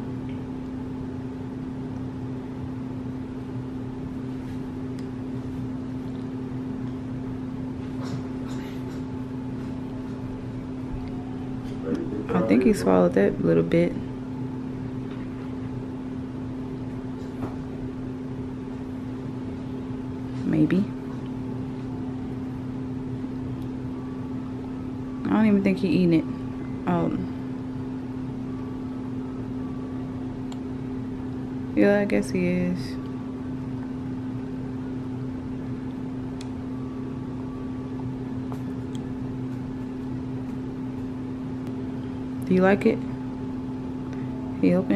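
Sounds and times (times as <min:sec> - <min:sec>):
low mechanical hum: 0:00.0 - 0:44.9
motor humming: 0:10.4 - 0:15.6.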